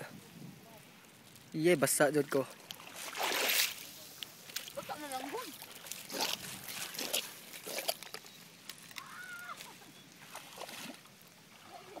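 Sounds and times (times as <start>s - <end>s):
footsteps splashing in muddy water: 2.6s - 8.2s, 9.6s - 12.0s.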